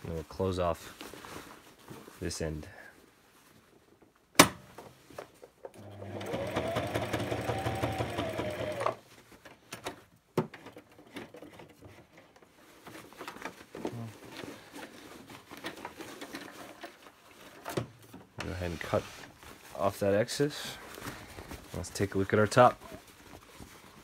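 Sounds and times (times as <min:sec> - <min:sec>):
fabric handling sounds: 0:00.0 - 0:04.2, 0:12.0 - 0:24.0
sewing machine stitching: 0:05.8 - 0:09.0.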